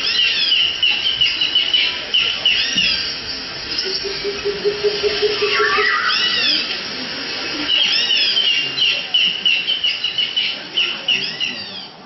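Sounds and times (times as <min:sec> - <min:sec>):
high-pitched squealing calls: 0:03.7 - 0:06.7.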